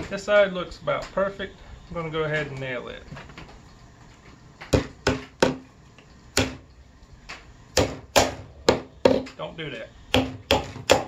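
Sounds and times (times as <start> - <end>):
hammer striking nail into wood: 4.7 - 5.6, 6.4 - 6.6, 7.8 - 9.4, 10.1 - 11.0.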